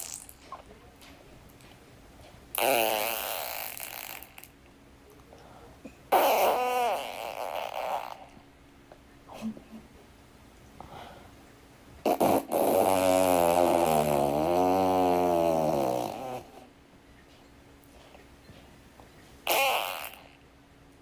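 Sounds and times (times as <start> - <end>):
fart: 0.0 - 0.6, 2.5 - 4.6, 6.1 - 8.4, 12.0 - 16.7, 19.4 - 20.4.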